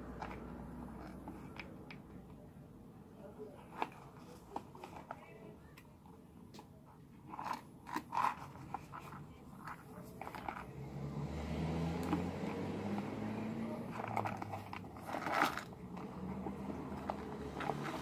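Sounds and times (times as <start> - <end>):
fingers clicking and rubbing on box: 7.2 - 10.7.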